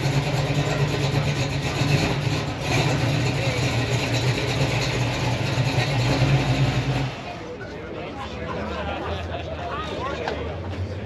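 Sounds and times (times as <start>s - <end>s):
car engine idling: 0.0s - 7.8s.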